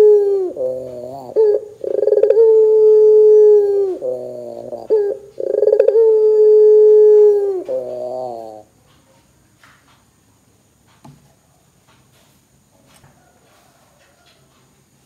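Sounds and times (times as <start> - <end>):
dove cooing: 0.0 - 8.8.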